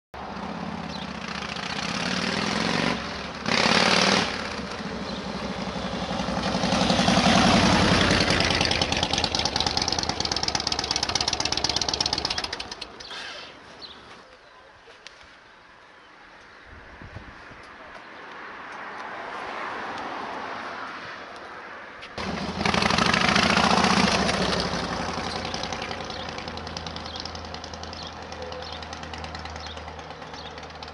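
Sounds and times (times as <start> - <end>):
motorcycle riding past: 0.2 - 13.0, 22.2 - 30.9.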